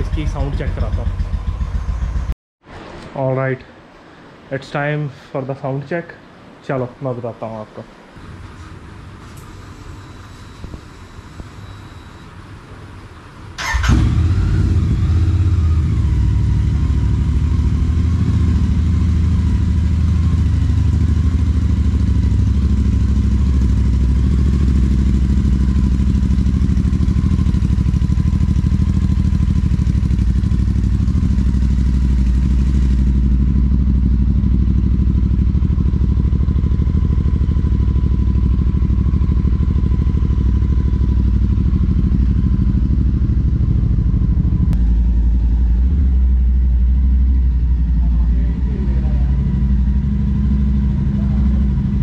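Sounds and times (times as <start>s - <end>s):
motorcycle engine idling: 0.0s - 2.4s, 13.6s - 52.0s
motorcycle engine starting: 0.0s - 2.4s, 13.5s - 52.0s.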